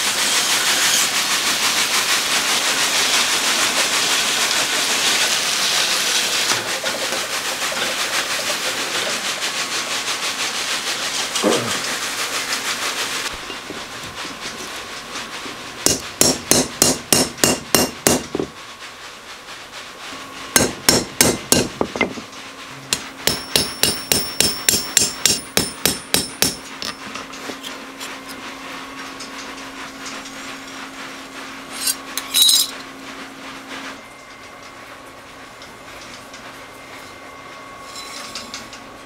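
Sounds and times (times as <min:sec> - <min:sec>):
hammer tapping knife blade: 0:23.0 - 0:27.0
high metallic ring: 0:23.3 - 0:27.0, 0:31.8 - 0:32.8, 0:37.8 - 0:38.6.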